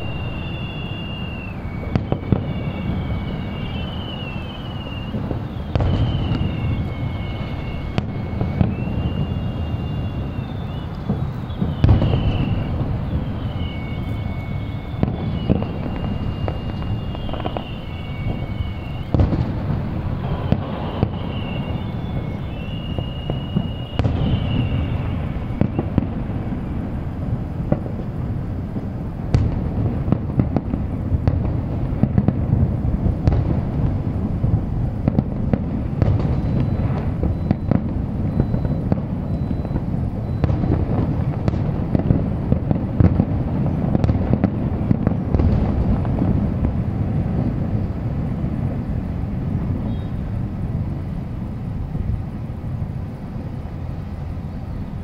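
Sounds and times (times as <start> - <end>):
high whistling tones: 0.0 - 26.9, 36.0 - 41.3
distant fireworks bangs and crackles: 0.0 - 55.0.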